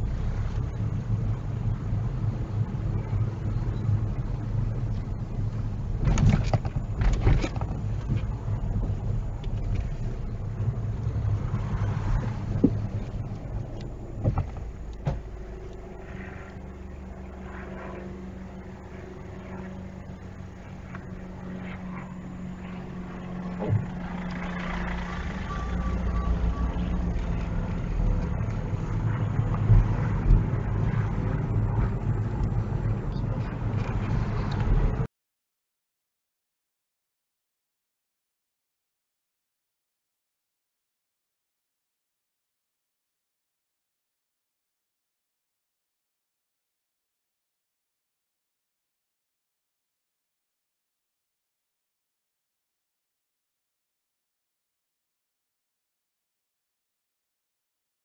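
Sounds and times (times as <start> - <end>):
car road and engine noise: 0.0 - 35.1.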